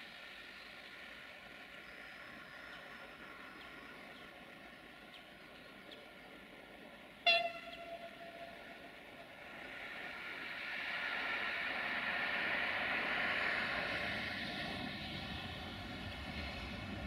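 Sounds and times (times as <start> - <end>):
train running noise: 0.0 - 17.0
train horn blast: 7.2 - 8.8.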